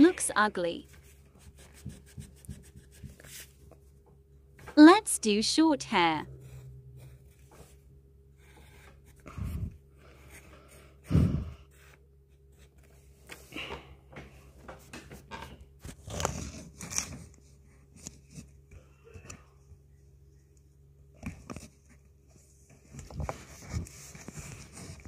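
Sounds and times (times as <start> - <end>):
pencil drawing on paper: 0.8 - 3.5, 6.3 - 7.8, 8.4 - 12.9.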